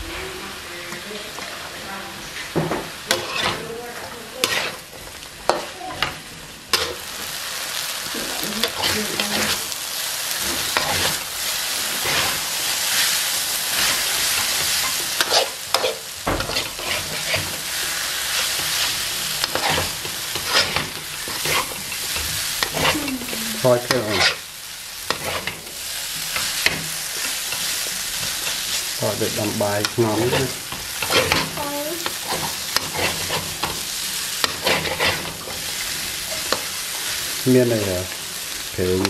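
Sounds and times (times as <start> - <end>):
noodles sizzling in a wok: 0.0 - 39.0
utensil scraping and clinking wok: 3.0 - 7.4, 8.4 - 39.0.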